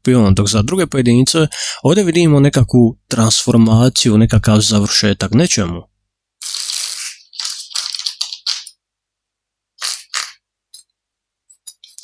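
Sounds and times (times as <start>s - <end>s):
cards swishing and scraping: 6.4s - 8.7s, 9.8s - 10.9s, 11.5s - 12.0s.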